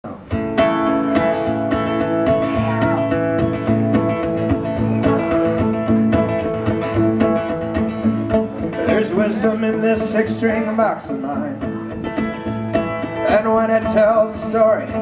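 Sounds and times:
acoustic guitars strumming: 0.0 - 15.0.

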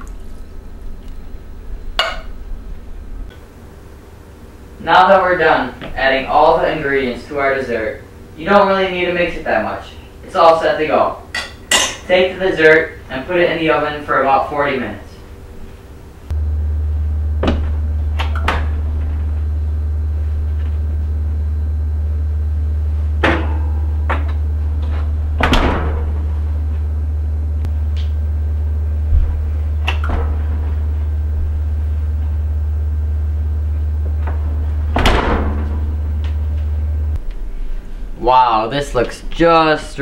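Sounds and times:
loud low hum: 0.0 - 11.3, 12.1 - 40.0
oven door clunking: 29.2 - 31.0, 34.1 - 36.9.

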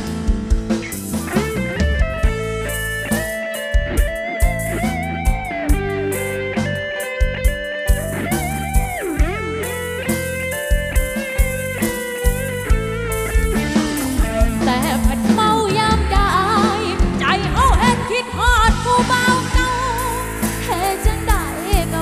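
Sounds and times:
live folk-pop band music: 0.0 - 22.0
wavering bending melody line: 12.4 - 18.1.

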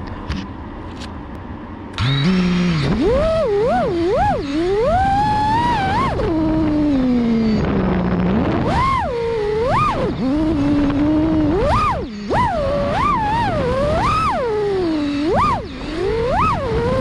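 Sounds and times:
drone motors whining: 2.0 - 17.0.

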